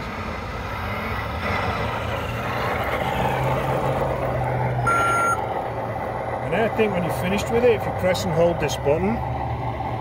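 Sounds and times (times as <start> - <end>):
electronic beep: 4.8 - 5.4.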